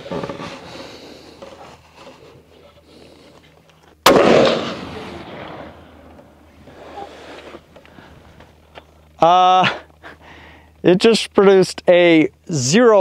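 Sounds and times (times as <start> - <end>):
rifle shot with echo: 4.0 - 5.9.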